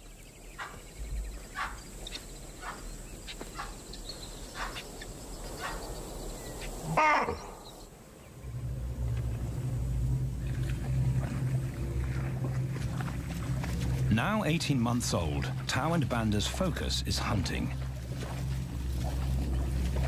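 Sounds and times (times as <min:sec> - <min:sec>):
low steady drone: 0:06.9 - 0:20.0.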